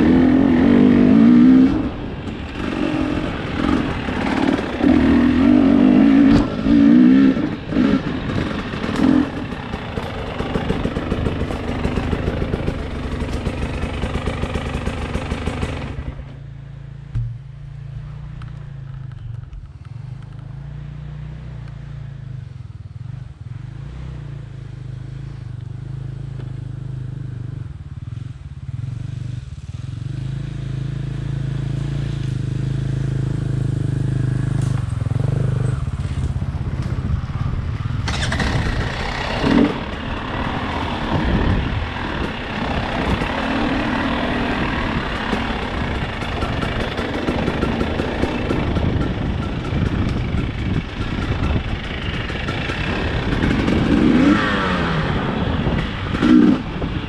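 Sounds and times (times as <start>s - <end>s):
motorcycle engine revving: 0.0s - 57.0s
motorcycle engine idling: 7.5s - 20.7s, 32.4s - 57.0s.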